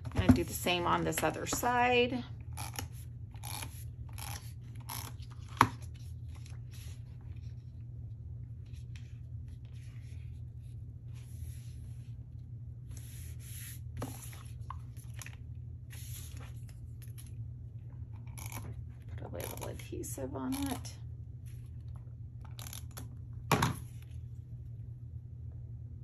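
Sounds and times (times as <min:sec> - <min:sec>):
steady low hum: 0:00.0 - 0:26.0
hands rubbing paper: 0:13.0 - 0:14.6.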